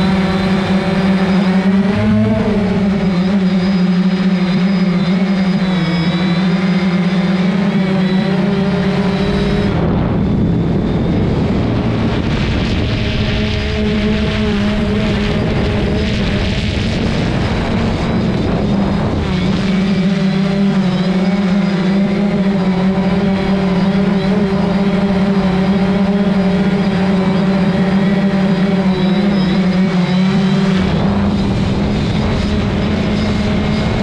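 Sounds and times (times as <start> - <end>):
drone propellers humming: 0.0 - 34.0
low rumble: 8.7 - 21.2, 30.3 - 34.0.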